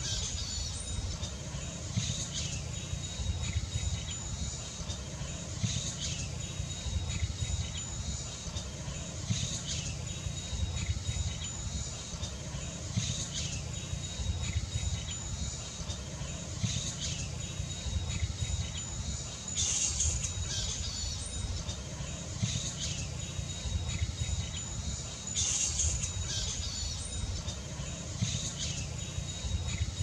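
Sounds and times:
steady high whine: 0:00.0 - 0:30.0
flying foxes squawking: 0:15.1 - 0:30.0.

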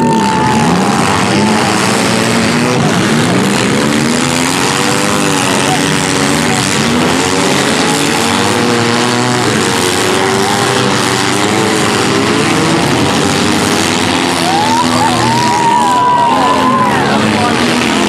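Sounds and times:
car engines revving: 0:00.0 - 0:18.0.

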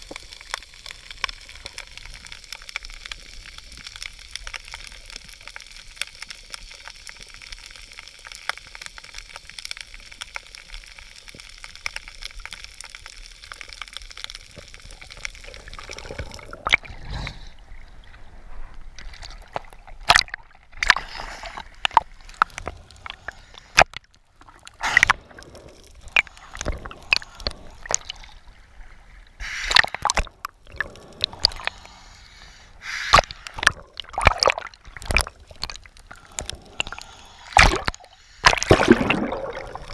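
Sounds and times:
faint crackling clicks: 0:00.0 - 0:16.9, 0:18.0 - 0:39.9
muffled underwater hiss: 0:00.0 - 0:19.6, 0:20.8 - 0:23.8, 0:24.6 - 0:34.2, 0:35.2 - 0:39.9
waves splashing against camera: 0:32.7 - 0:39.9.

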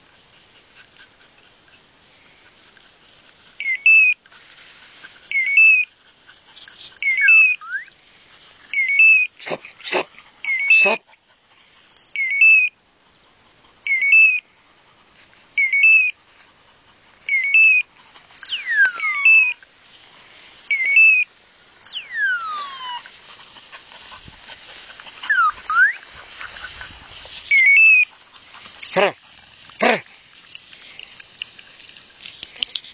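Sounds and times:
dry grass rustling: 0:00.0 - 0:32.9
long falling whistles: 0:21.9 - 0:22.9.

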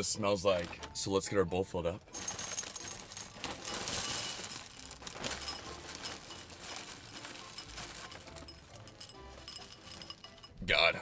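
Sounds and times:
cereal pouring into bowl: 0:02.1 - 0:10.4.

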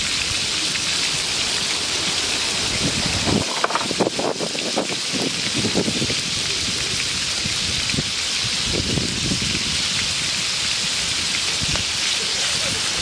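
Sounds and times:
frogs sizzling in hot oil: 0:00.0 - 0:13.0
oil bubbles popping: 0:02.8 - 0:06.2.

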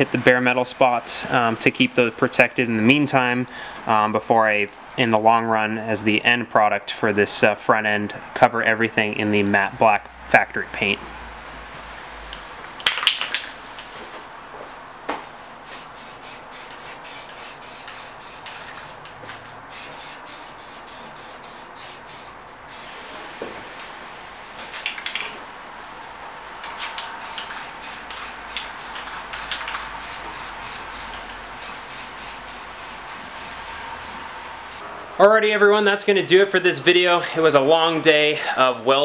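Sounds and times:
aerosol can spraying: 0:15.4 - 0:19.1, 0:19.7 - 0:22.9, 0:27.2 - 0:34.8.

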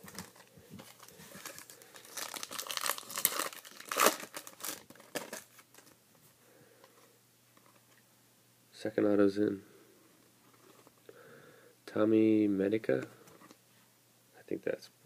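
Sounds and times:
foil pack crinkling and tearing: 0:00.0 - 0:06.0.

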